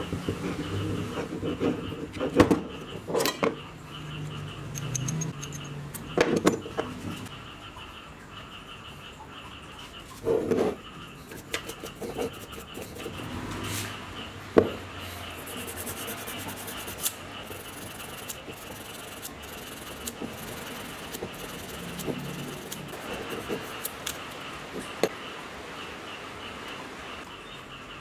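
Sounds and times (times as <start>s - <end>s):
armature rubbing on bench: 15.3s - 23.9s.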